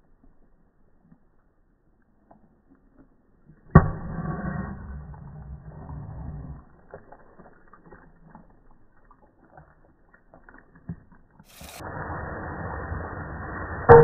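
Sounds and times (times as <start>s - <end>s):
short hiss: 11.5s - 13.8s
steady sizzling: 11.5s - 14.0s.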